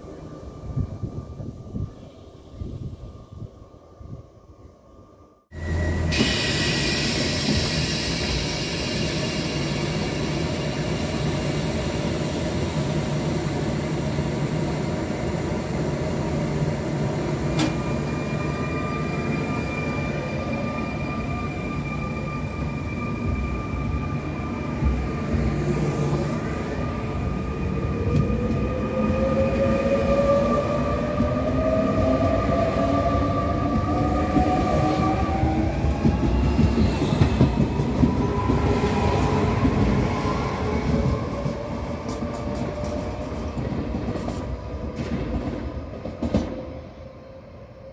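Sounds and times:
train rumble: 22.6s - 46.9s.

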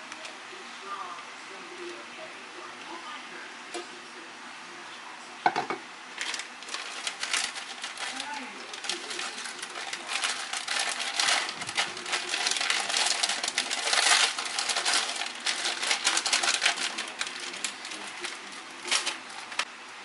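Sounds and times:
plastic sachet crinkling: 6.2s - 19.7s.

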